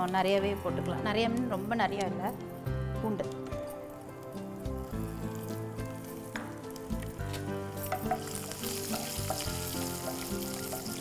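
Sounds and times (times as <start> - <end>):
soft background music: 0.0 - 11.0
oil sizzling in a pan: 4.6 - 11.0.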